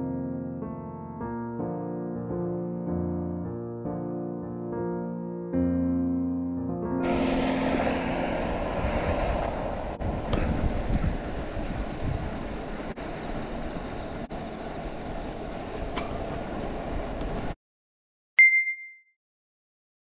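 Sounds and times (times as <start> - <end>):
wind on microphone: 7.0 - 13.0
bicycle tyre road rumble: 7.0 - 17.6.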